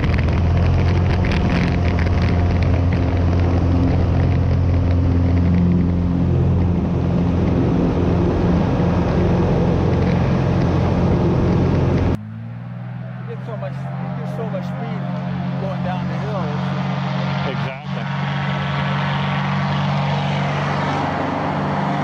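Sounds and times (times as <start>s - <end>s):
plane piston engine and propeller: 0.0s - 12.2s, 13.2s - 22.0s.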